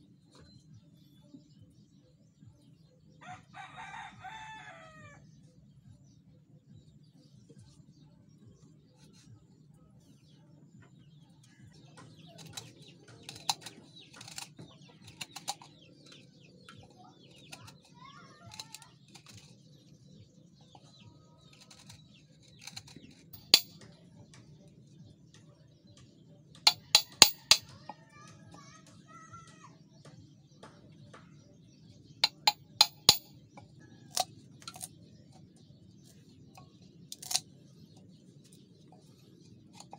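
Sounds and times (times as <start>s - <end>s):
blade and chisel on bamboo: 12.4s - 15.8s, 17.3s - 19.6s, 21.5s - 23.8s, 26.7s - 27.9s, 32.2s - 33.3s, 37.1s - 37.4s
chisel struck into bamboo: 22.6s - 23.8s, 26.7s - 27.9s, 32.2s - 33.3s.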